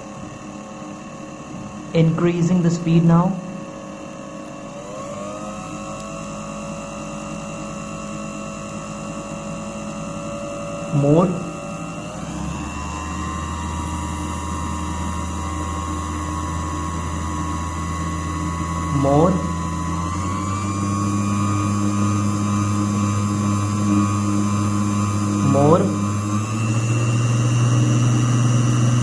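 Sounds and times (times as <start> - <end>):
low hum: 0.0 - 20.2
sewing machine motor whine: 0.0 - 29.0.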